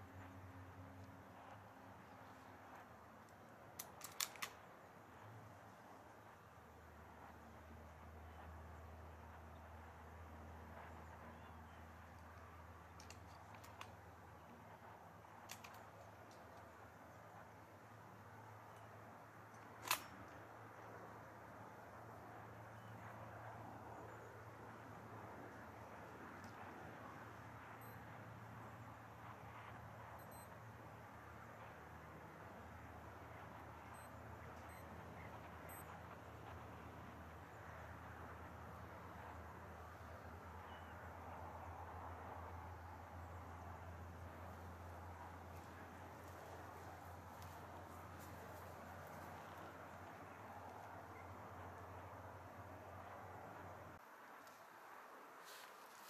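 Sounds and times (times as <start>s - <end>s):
steady low hum: 0.0s - 55.4s
faint sharp clicks: 0.1s - 5.3s, 10.7s - 16.8s
short high-pitched beeps: 30.2s - 30.6s, 35.7s - 35.9s.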